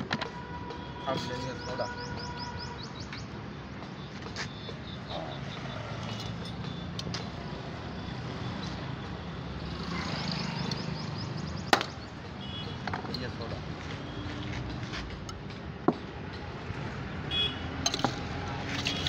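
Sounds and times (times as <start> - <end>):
street traffic: 0.0 - 19.0.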